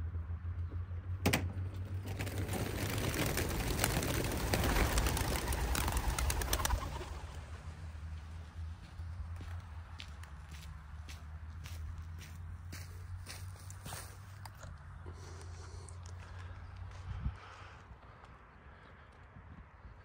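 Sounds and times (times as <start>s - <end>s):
pigeon wings clattering: 1.8s - 7.6s
pigeons cooing: 3.8s - 7.4s.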